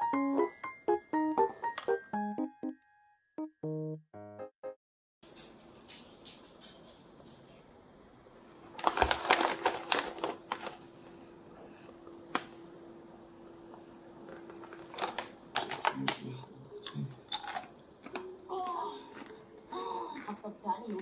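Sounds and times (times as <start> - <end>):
crunching potato chips: 8.7 - 10.8, 16.8 - 18.3
chip bag crinkling: 8.7 - 10.9, 14.2 - 18.3.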